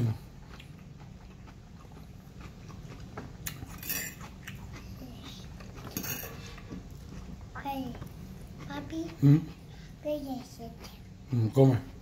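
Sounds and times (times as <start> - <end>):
chewing: 0.0 - 12.0
fork scraping a plate: 3.7 - 4.4, 5.6 - 6.7.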